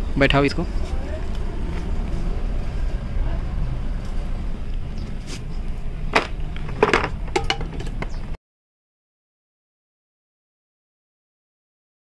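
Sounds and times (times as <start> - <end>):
low rumble: 0.0 - 8.4.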